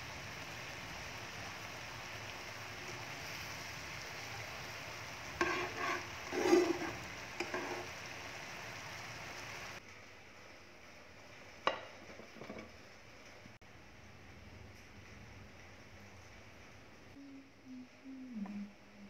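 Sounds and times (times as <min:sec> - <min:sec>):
sauce bubbling and sizzling: 0:00.0 - 0:13.7
tongs scraping a pan: 0:05.4 - 0:08.0.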